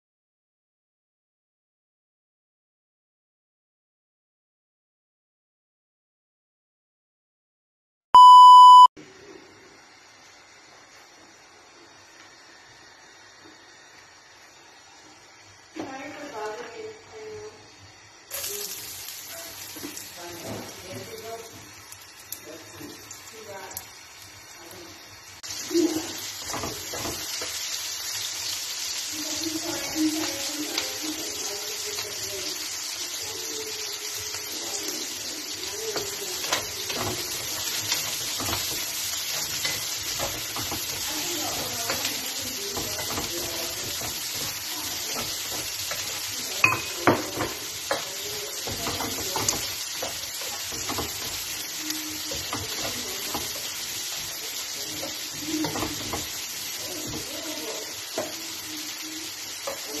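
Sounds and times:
vegetables sizzling in a pan: 9.0s - 60.0s
spatula scraping a pan: 25.6s - 28.3s, 34.4s - 60.0s.

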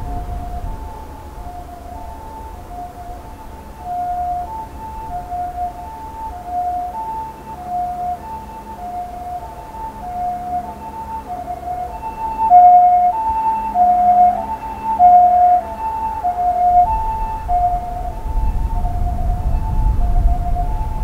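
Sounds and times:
jet airliner rumble: 0.0s - 6.5s, 16.0s - 21.0s
two-tone siren: 0.0s - 21.0s.

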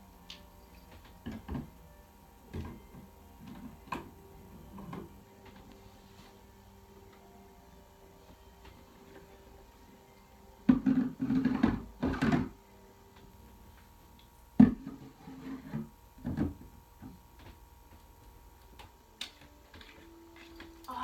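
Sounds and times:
rummaging and clatter of objects: 2.4s - 6.4s, 10.6s - 12.6s, 19.4s - 21.0s.

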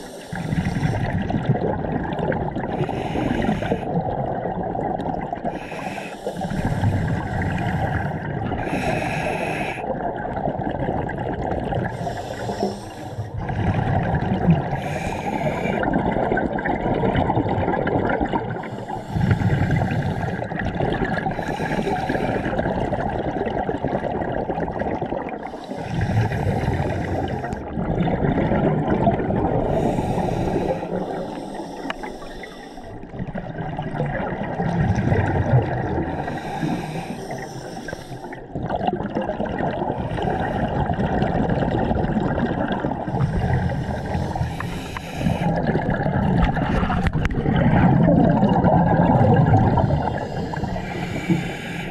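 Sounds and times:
hissing regulator inhalations: 0.0s - 1.1s, 2.8s - 3.9s, 5.5s - 9.8s, 11.9s - 13.3s, 14.7s - 15.8s, 18.6s - 20.5s, 25.5s - 27.7s, 29.7s - 33.1s, 36.1s - 38.4s, 43.1s - 45.6s, 49.7s - 51.9s
exhaled bubbles rumbling: 0.0s - 51.9s.

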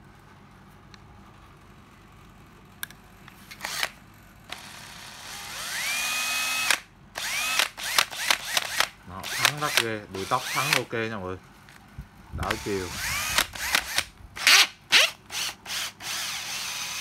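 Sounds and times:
cordless drill motor whining: 3.6s - 3.9s, 4.5s - 10.9s, 12.4s - 17.0s.

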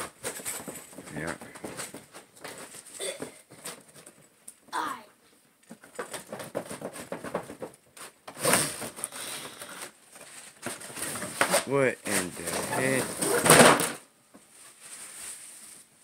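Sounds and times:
packaging clicks and rustles: 8.4s - 13.4s.

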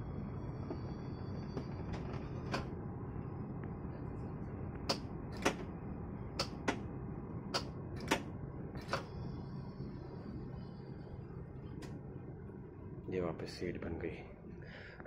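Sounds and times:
faint high whine: 0.0s - 15.0s
steady low hum: 0.0s - 15.0s
sharp mechanical seat clicks: 4.9s - 5.7s, 7.6s - 9.1s.

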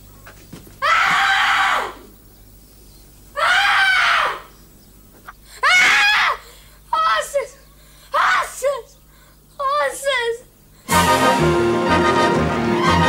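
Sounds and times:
boy screaming in pain: 8.1s - 8.9s.

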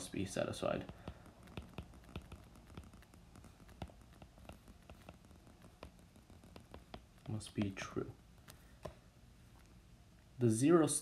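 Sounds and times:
stylus tapping on glass screen: 0.8s - 7.8s.

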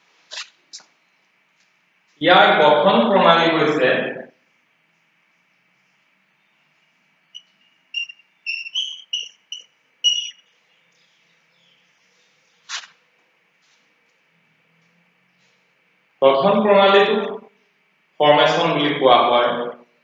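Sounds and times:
chalk squeaking on blackboard: 7.4s - 10.4s, 12.6s - 13.0s.

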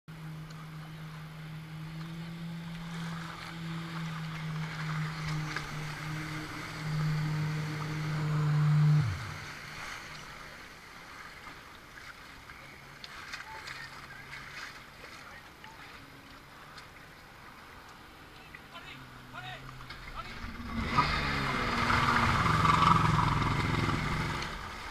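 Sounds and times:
hull in choppy water: 0.1s - 24.9s
jet ski engine: 0.1s - 24.9s
rushing water: 0.1s - 24.9s
wind: 0.1s - 24.9s.

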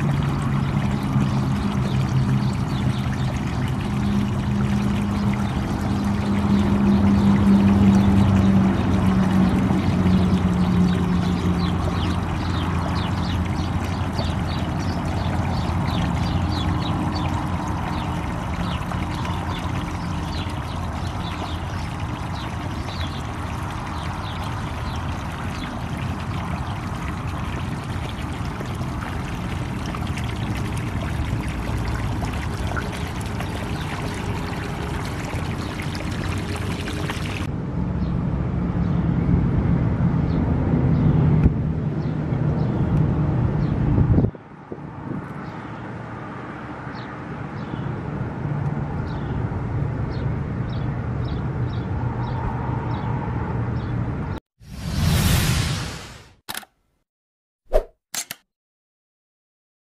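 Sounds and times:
water from hose onto soil: 0.0s - 37.5s
low motor hum: 0.0s - 44.3s.

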